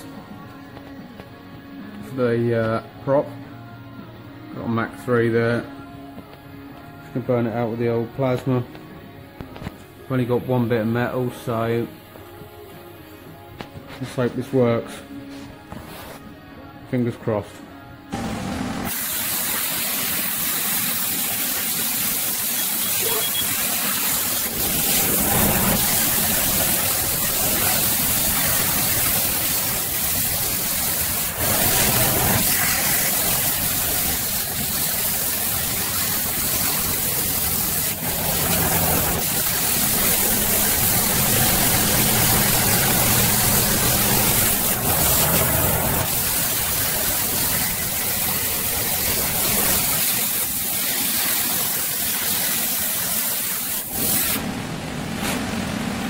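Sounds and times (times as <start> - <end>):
plasma cutter hissing: 18.2 - 54.4.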